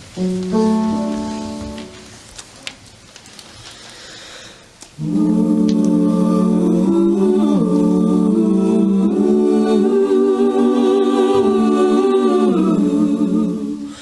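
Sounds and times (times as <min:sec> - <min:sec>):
mixed choir singing: 0:05.0 - 0:14.0.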